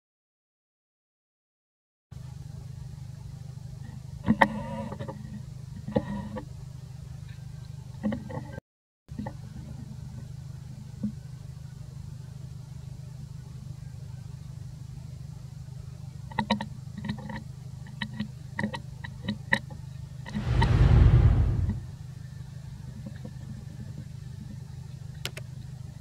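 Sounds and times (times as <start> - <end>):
loud rushing burst: 20.3 - 22.0
steady low hum: 20.3 - 22.1.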